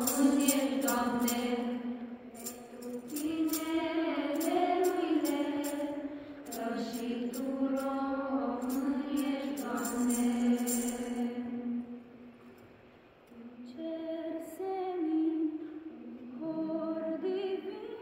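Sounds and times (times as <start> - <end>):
rhythmic jingling: 0.0 - 11.5
women and children singing: 0.0 - 12.0, 13.3 - 18.0.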